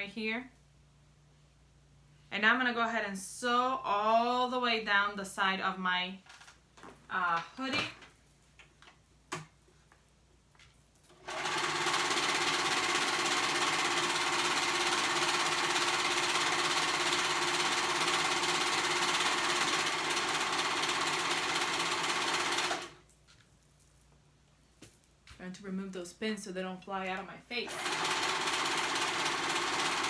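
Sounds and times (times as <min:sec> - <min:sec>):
serger sewing machine running: 0:11.2 - 0:23.0, 0:27.7 - 0:30.0.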